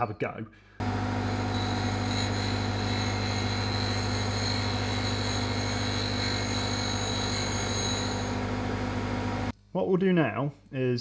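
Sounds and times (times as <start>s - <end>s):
grinder motor hum and whine: 0.8s - 9.5s.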